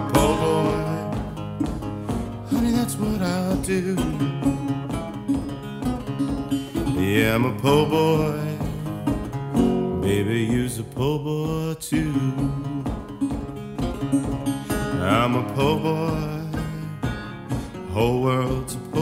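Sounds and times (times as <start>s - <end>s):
man singing: 0.0s - 4.7s, 6.7s - 13.4s, 14.6s - 19.0s
fingerpicked resonator guitar blues: 0.0s - 19.0s.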